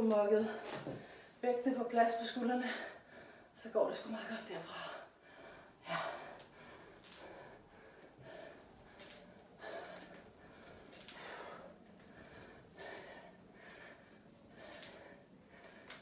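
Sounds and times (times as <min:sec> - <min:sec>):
woman breathing hard: 0:02.6 - 0:03.6, 0:04.8 - 0:16.0.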